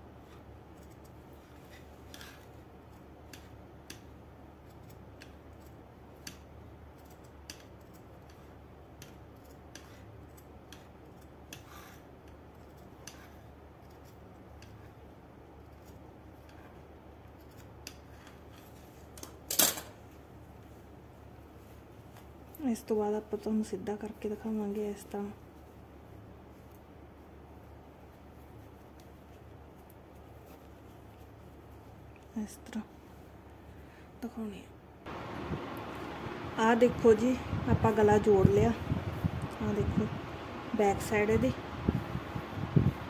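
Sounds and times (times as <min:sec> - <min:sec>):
shears snipping fabric: 0:00.1 - 0:19.2.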